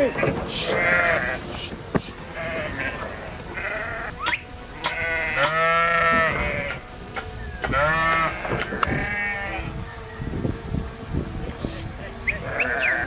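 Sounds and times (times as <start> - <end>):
sheep bleating: 0.0 - 1.5, 2.3 - 6.8, 7.7 - 9.7, 12.4 - 13.0.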